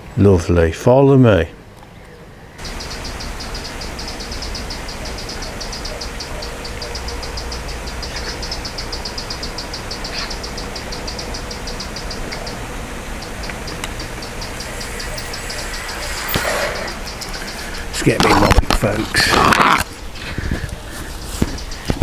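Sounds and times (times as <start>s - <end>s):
fast high ticking: 2.6s - 22.0s
bicycle tyres and air rushing: 12.8s - 18.1s, 19.0s - 22.0s.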